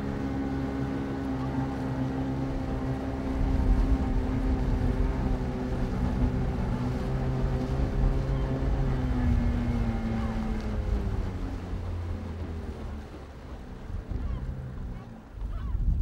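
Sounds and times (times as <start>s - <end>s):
boat motor running: 0.0s - 16.0s
wind noise: 13.8s - 16.0s.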